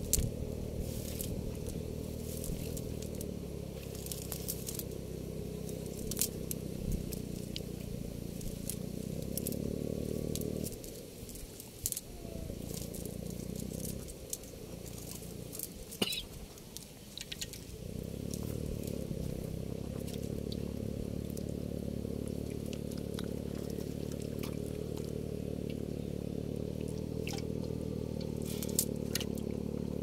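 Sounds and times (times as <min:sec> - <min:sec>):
fishing net crackling and rustling: 0:00.0 - 0:05.0, 0:10.4 - 0:17.8, 0:28.2 - 0:29.6
low motor hum: 0:00.0 - 0:30.0
small clicks: 0:16.6 - 0:17.7, 0:26.8 - 0:29.4.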